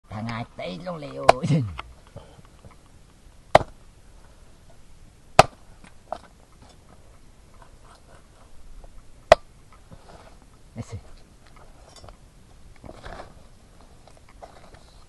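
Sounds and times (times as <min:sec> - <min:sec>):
small clicks and rustles: 0:01.8 - 0:03.3, 0:05.8 - 0:15.0
machete chopping on wooden board: 0:03.5 - 0:03.8, 0:05.4 - 0:05.6.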